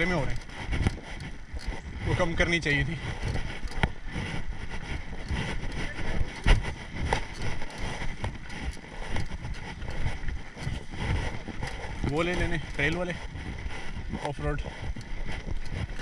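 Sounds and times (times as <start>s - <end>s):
wind and tyre noise: 0.0s - 16.0s
bike knocks and rattles: 5.2s - 9.9s, 15.4s - 16.0s.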